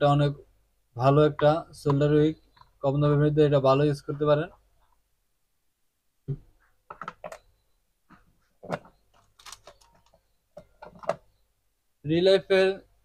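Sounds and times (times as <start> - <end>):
plastic items clicking and tapping: 6.9 - 7.4, 8.1 - 11.3.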